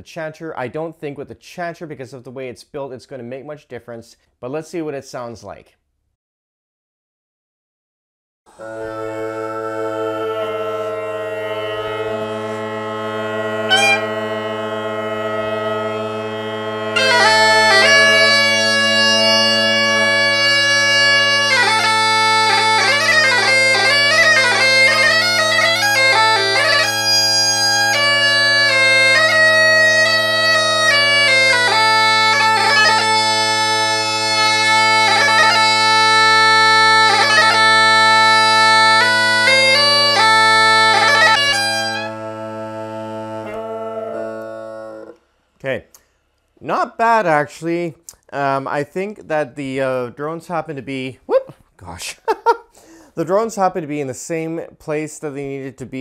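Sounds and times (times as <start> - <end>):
bagpipe chanter playing a tune: 8.5 - 45.3
bagpipe drones: 8.5 - 45.4.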